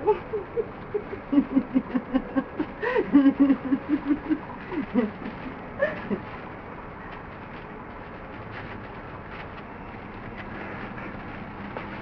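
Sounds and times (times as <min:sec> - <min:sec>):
person laughing: 0:00.0 - 0:06.4.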